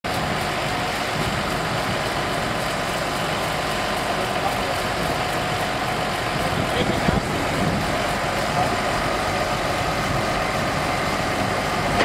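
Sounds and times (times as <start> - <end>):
tractor engine running: 0.0 - 12.0.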